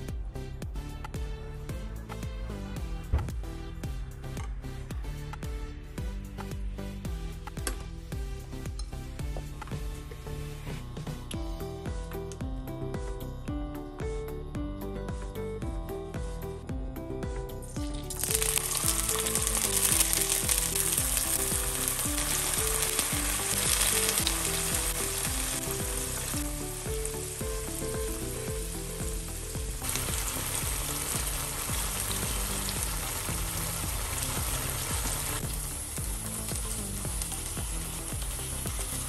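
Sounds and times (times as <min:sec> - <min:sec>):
tofu sizzling in oil: 0:17.9 - 0:39.0.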